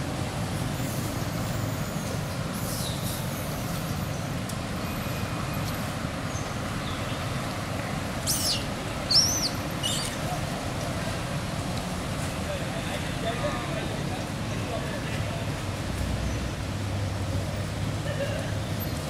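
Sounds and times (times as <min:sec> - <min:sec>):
monkeys squeaking: 0:08.3 - 0:10.2.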